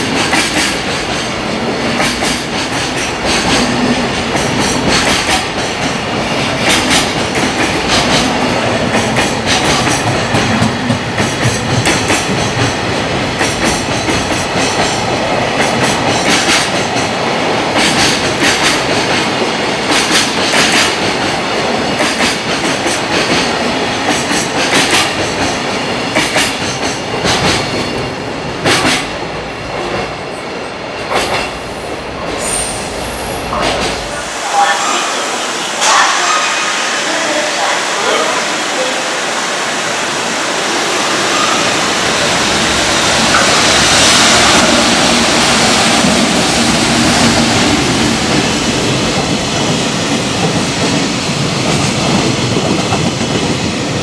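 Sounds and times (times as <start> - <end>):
train wheels clacking over rail joints: 0.0 - 17.1, 17.7 - 29.2, 31.0 - 31.6
freight train passing: 0.0 - 54.0.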